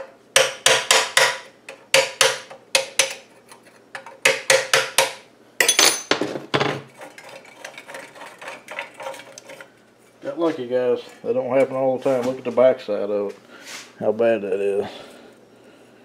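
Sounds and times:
wrench clinking on metal nut: 5.6 - 6.1.

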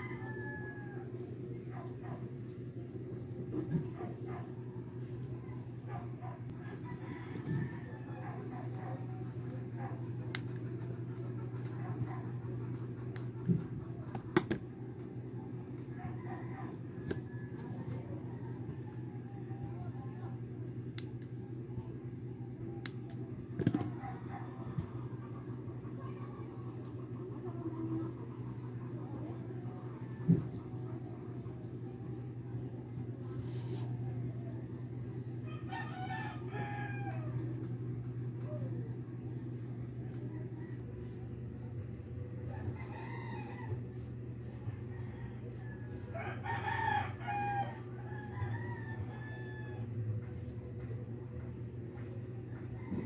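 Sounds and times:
rooster crowing: 0.0 - 2.2, 5.5 - 9.2, 15.8 - 19.1, 35.4 - 37.8, 42.4 - 50.9, 52.5 - 53.0
steady low hum: 0.0 - 53.0.

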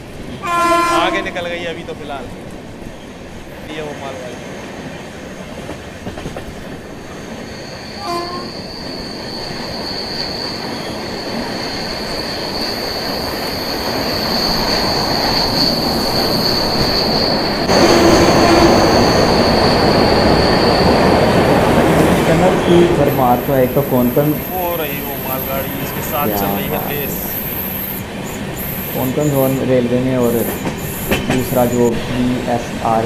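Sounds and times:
train rolling rumble: 0.0 - 33.0
train wheel squeal: 6.3 - 32.6.

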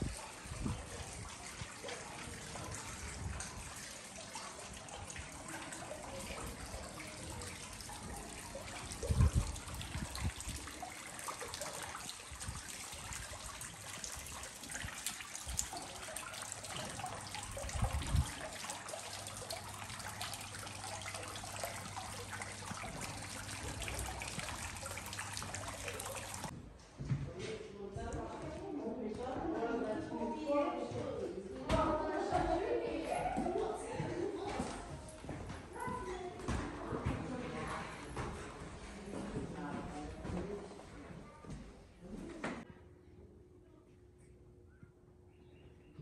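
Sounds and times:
running water: 0.0 - 26.5.

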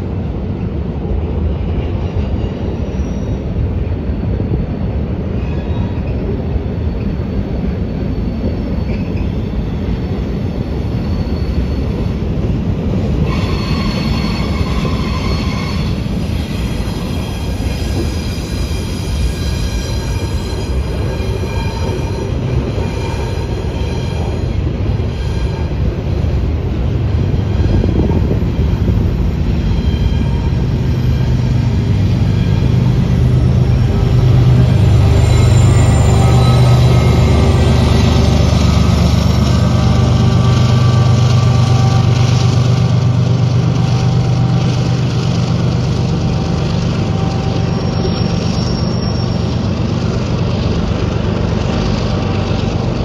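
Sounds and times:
freight train wheels rumbling on rail: 0.0 - 53.0
high-pitched wheel squeal: 5.4 - 12.2, 13.2 - 26.2, 27.2 - 45.3, 45.9 - 50.2.

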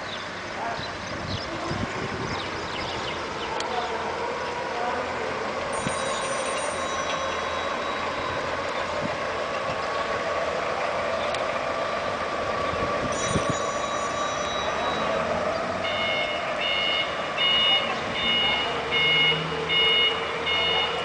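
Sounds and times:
high warning tone: 5.7 - 8.8, 13.0 - 21.0.

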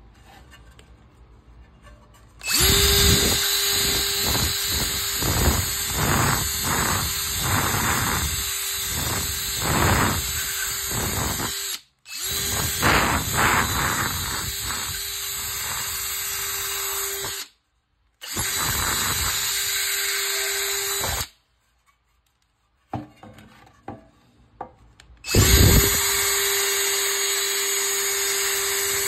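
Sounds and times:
drill motor whine: 2.4 - 17.5, 18.2 - 21.3, 25.3 - 29.0.

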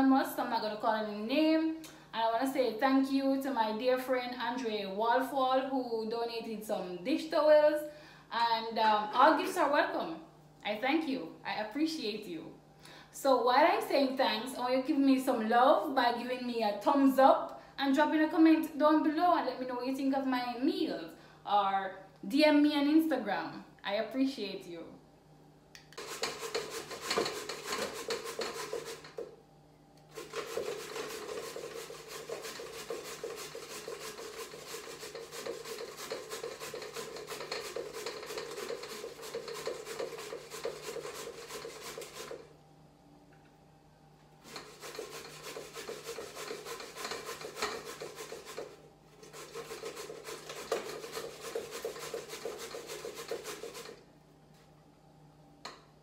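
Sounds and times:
pumpkin grated by hand: 26.0 - 29.3, 30.1 - 42.5, 44.4 - 54.0.

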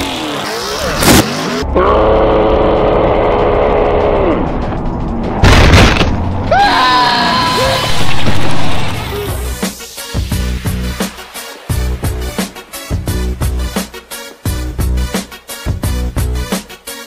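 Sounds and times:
music: 0.0 - 17.0
booming crash sound effects: 4.5 - 6.6, 7.4 - 9.6.

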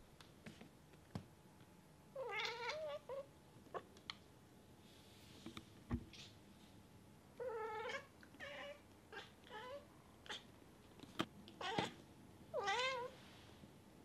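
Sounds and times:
cat chirping and meowing: 2.2 - 3.3, 12.6 - 13.1.

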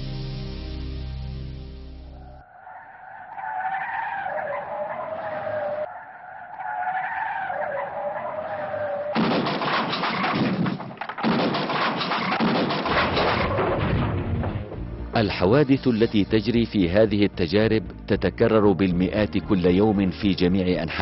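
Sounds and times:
metal and plastic crash: 9.2 - 14.7.

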